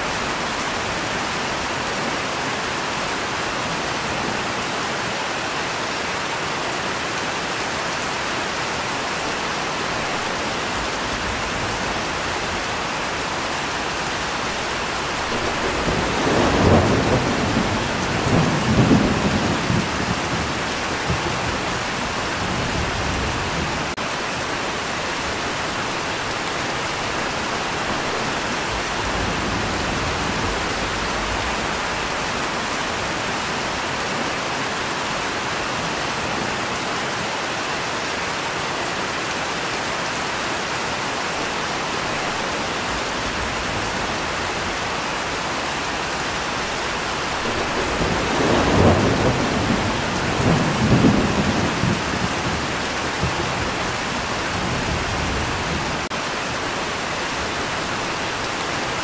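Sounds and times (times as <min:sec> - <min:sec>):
steady rain falling: 0:00.0 - 0:59.0
thunder rumbling: 0:14.3 - 0:24.0, 0:46.4 - 0:56.1.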